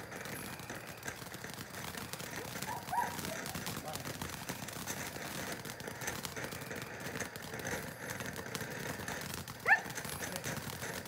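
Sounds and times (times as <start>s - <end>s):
firework spraying sparks hissing: 0.0s - 11.0s.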